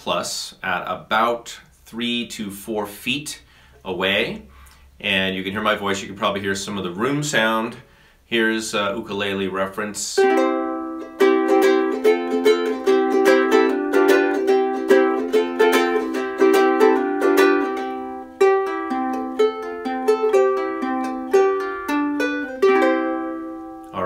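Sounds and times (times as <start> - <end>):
ukulele strumming: 10.2 - 24.0.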